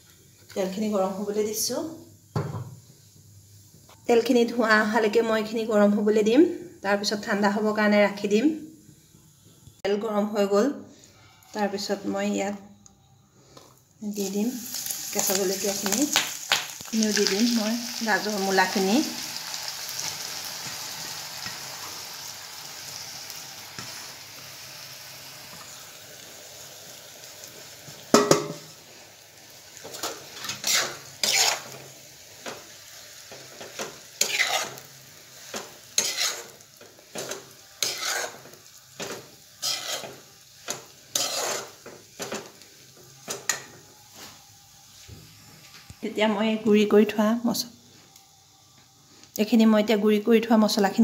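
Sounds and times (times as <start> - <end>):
vegetables sizzling in oil: 0.0 - 9.8, 13.8 - 51.0
metal spatula scraping pan: 29.9 - 31.9, 33.6 - 34.9, 35.5 - 42.5.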